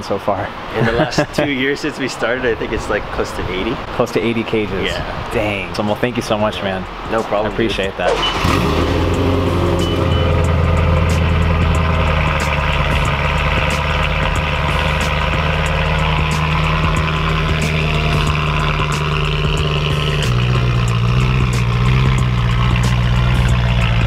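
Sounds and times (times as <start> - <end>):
car engine idling: 6.4 - 24.0.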